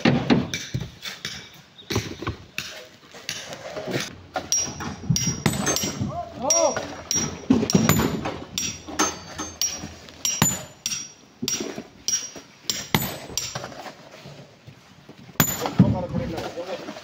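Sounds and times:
hammer striking rock: 4.4s - 13.7s, 15.4s - 16.0s.

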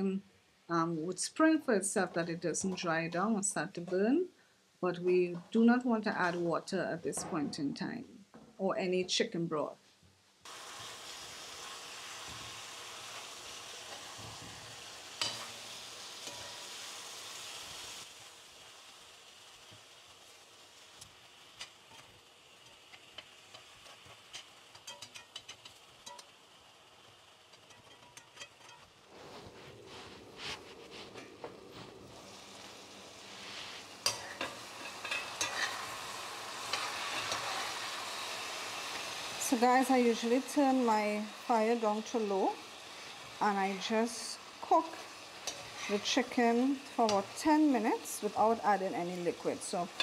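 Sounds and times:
chicken wings sizzling in pot: 10.4s - 50.0s
metal spatula scraping pan: 23.5s - 26.2s, 27.6s - 29.7s, 33.4s - 39.2s
metal spoon stirring: 23.5s - 26.3s, 27.5s - 29.0s, 34.0s - 37.9s.

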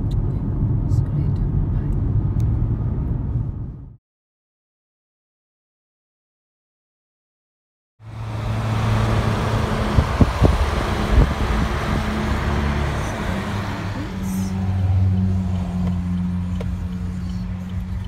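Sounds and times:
road noise: 0.0s - 4.0s, 8.0s - 18.0s
car engine drone: 8.0s - 18.0s.

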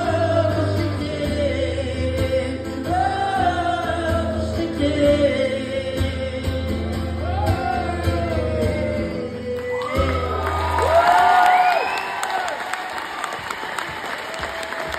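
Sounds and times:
acoustic guitar: 0.0s - 11.6s.

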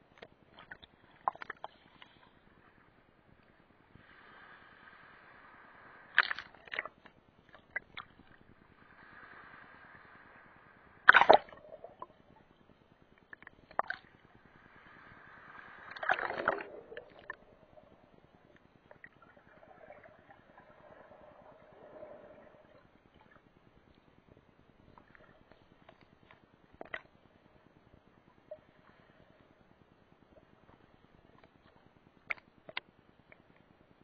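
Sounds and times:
small waves sloshing and splashing: 14.6s - 18.2s.

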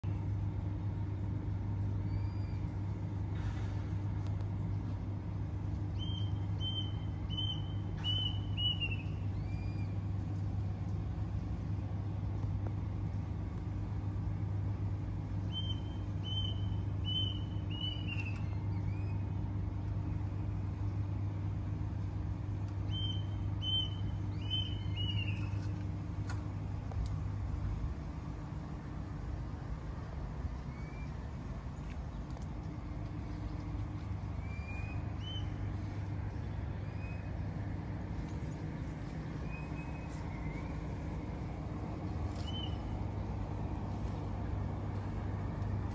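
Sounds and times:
low mechanical hum: 0.0s - 45.9s
bird singing: 2.0s - 2.7s, 5.9s - 10.1s, 15.5s - 19.3s, 22.8s - 25.7s, 30.6s - 31.2s, 34.4s - 37.4s, 39.1s - 41.3s, 42.3s - 43.0s.

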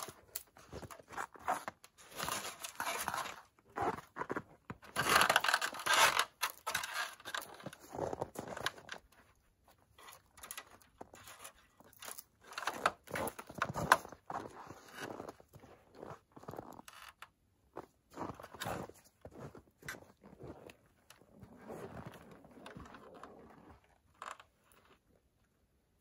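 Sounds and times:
lights rustling and scraping on tent: 0.0s - 4.2s.

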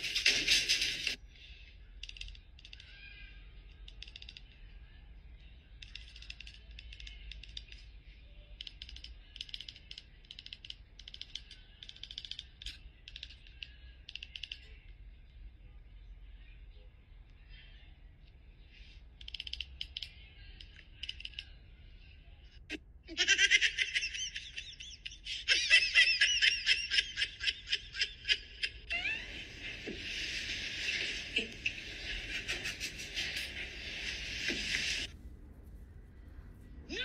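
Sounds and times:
high-pitched laughing: 23.0s - 35.1s
steady high hiss: 29.2s - 37.0s.

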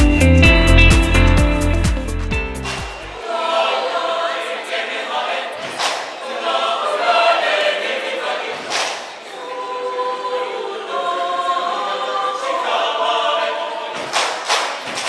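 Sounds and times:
mixed choir singing a cappella: 3.1s - 15.0s.

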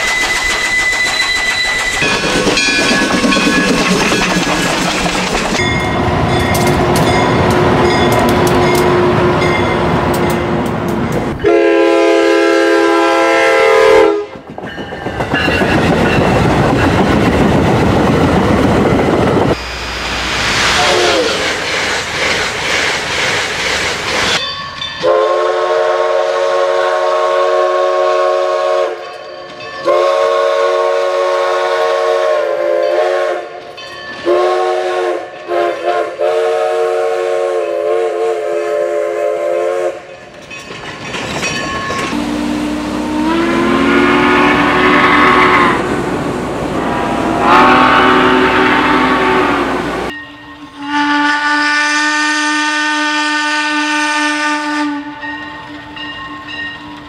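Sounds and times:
steady whistle: 0.0s - 2.8s
locomotive air horn blasts: 11.4s - 14.3s, 20.8s - 21.4s, 25.0s - 29.0s, 29.9s - 33.5s, 34.3s - 40.0s, 42.1s - 45.9s, 46.8s - 50.1s, 50.7s - 55.2s
steam whistle rising in pitch: 11.4s - 14.3s, 19.6s - 21.4s, 25.0s - 29.0s, 29.9s - 33.5s, 34.3s - 40.0s, 42.1s - 45.9s, 46.8s - 50.1s, 50.8s - 55.2s.

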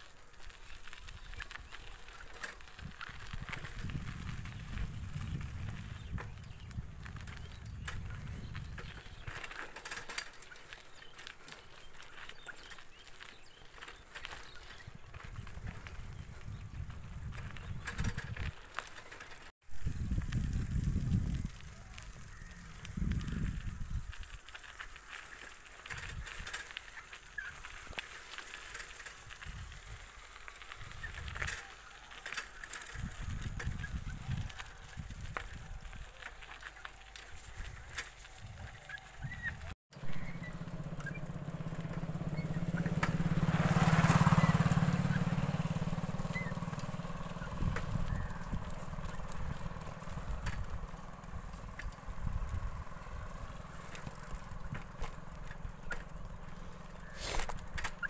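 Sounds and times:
wind rumble on microphone: 0.4s - 9.5s, 14.6s - 18.6s, 19.7s - 24.5s, 29.2s - 30.1s, 30.8s - 31.6s, 32.9s - 36.3s, 37.4s - 40.4s, 43.4s - 56.0s.

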